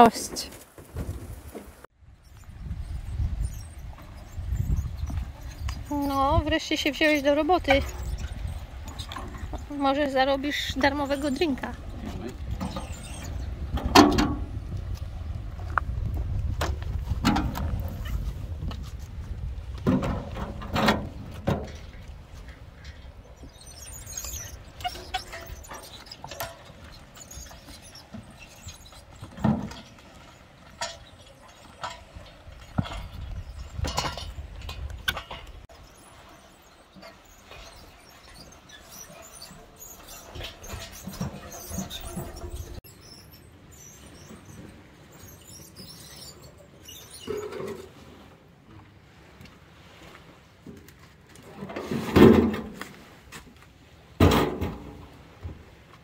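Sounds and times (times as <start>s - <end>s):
wheelbarrow rolling on wooden boardwalk: 0.0s - 56.0s
wheel clunking over board joints: 19.7s - 42.9s.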